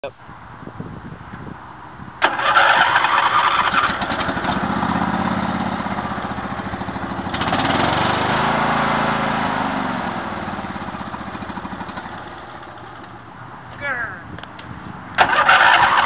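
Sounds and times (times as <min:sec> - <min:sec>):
lawn mower engine running: 0:02.2 - 0:13.7, 0:14.8 - 0:16.0.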